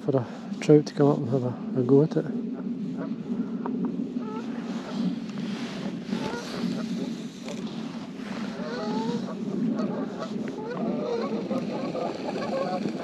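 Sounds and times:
geese honking: 4.2 - 7.2, 8.2 - 13.0.

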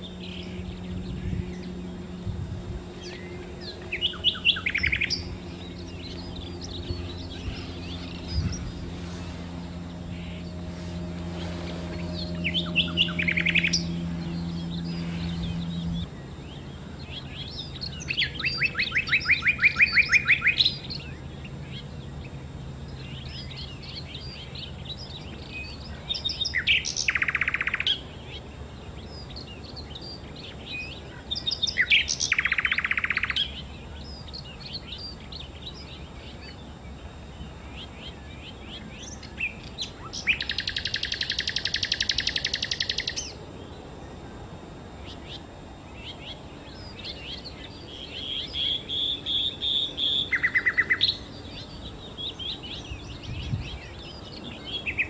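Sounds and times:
low steady hum: 0.0 - 55.0
songbird singing: 0.0 - 55.0.

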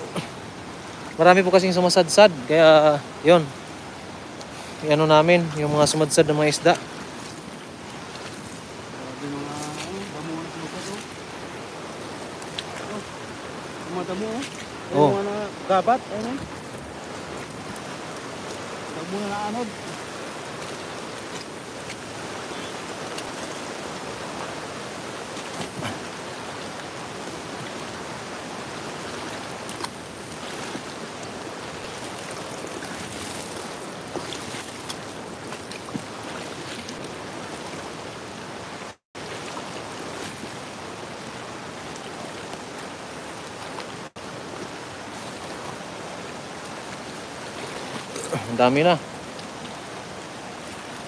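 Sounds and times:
floodwater rushing: 0.0 - 51.0
light splashes from wading: 16.0 - 38.0.

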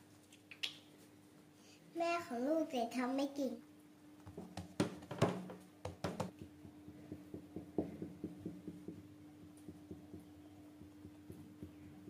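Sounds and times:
knocks: 4.3 - 9.0.

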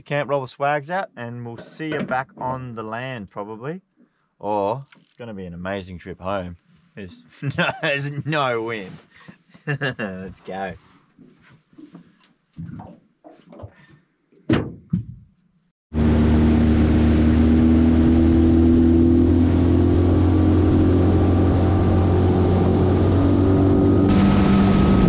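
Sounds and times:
outboard motor running: 16.0 - 25.0.

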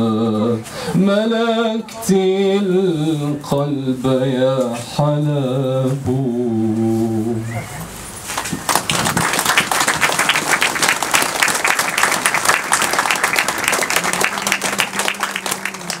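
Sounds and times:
crowd clapping: 8.3 - 16.0.

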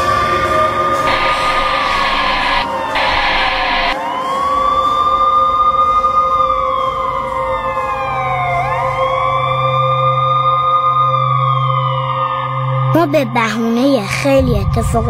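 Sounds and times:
police siren wailing: 0.9 - 12.9
low hum: 1.1 - 4.0
steady lower tone: 1.1 - 4.0.

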